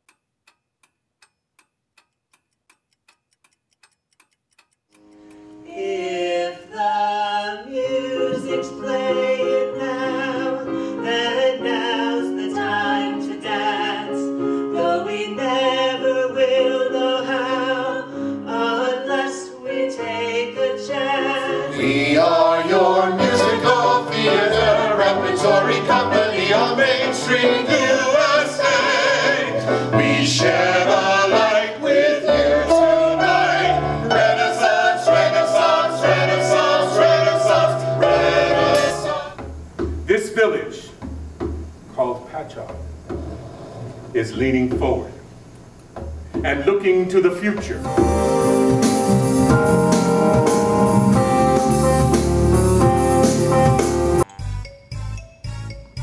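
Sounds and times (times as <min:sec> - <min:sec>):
faint ticking: 0:00.0 - 0:05.9
musical theatre music with singing: 0:05.2 - 0:41.0.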